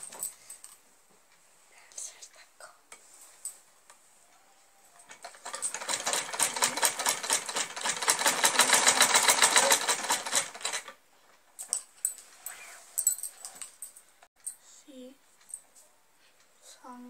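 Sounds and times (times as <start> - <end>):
sewing machine stitching: 5.1 - 11.0.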